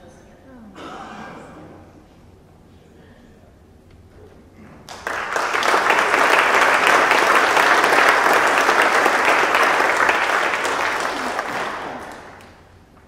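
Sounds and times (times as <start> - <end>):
congregation applauding: 4.8 - 12.8.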